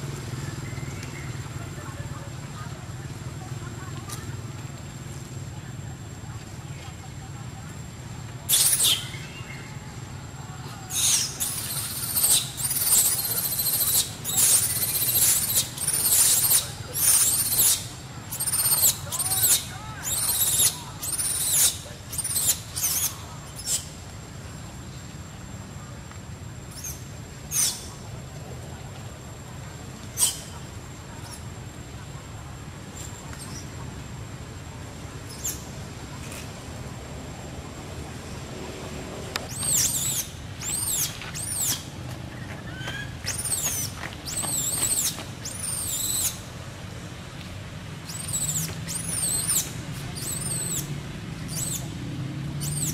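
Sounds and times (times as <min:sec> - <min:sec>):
baby monkey shrieking: 0:08.5 - 0:09.2, 0:10.9 - 0:23.9, 0:26.8 - 0:27.9, 0:30.2 - 0:30.5, 0:39.5 - 0:41.8, 0:42.7 - 0:46.4, 0:48.0 - 0:50.9, 0:51.5 - 0:51.8, 0:52.6 - 0:52.9.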